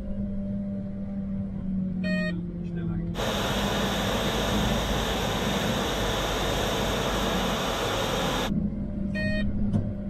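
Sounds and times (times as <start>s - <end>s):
low engine hum: 2.9s - 8.6s
tractor rushing hiss: 3.2s - 8.5s.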